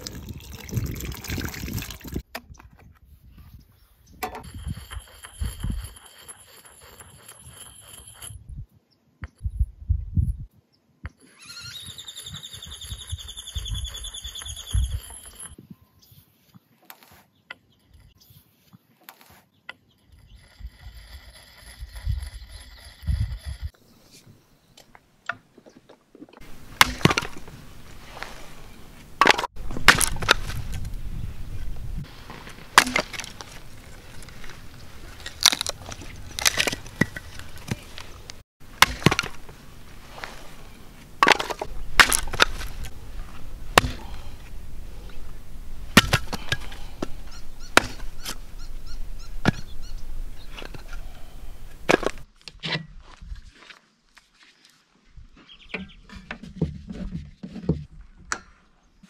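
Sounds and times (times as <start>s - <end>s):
hatchet chopping wood: 26.8s - 27.4s, 29.2s - 30.5s, 32.8s - 33.3s, 38.8s - 39.4s, 41.2s - 42.8s, 43.8s - 44.2s, 46.0s - 46.7s, 47.8s - 48.3s.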